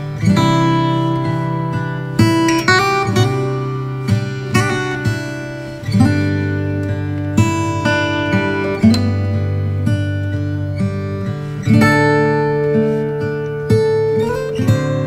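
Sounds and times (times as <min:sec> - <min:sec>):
strummed acoustic guitar: 0:00.0 - 0:15.0.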